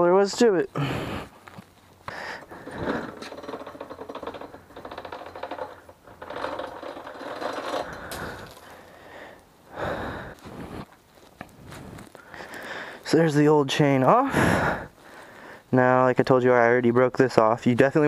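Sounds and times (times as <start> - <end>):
chain links rattling on concrete: 2.2 - 9.0.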